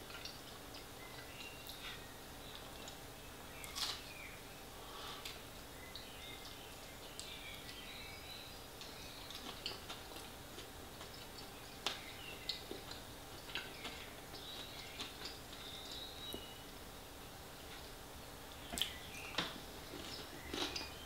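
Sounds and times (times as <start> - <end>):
person chewing with wet smacks: 0.0 - 3.0, 8.8 - 16.5, 18.6 - 21.0.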